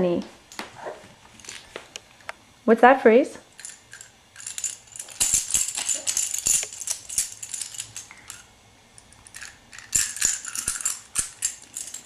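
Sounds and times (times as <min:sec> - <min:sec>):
plastic toy rattling and clicking: 0:03.6 - 0:08.4, 0:09.0 - 0:12.0.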